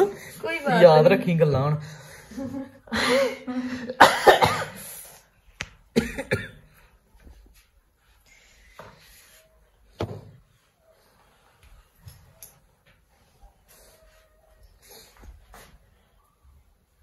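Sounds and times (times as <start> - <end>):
person coughing: 3.9 - 5.0, 6.0 - 6.7.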